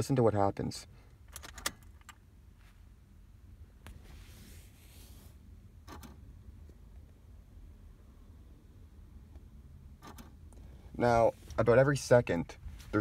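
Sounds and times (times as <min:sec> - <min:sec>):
soft hiss: 0:02.4 - 0:09.5, 0:10.4 - 0:13.0.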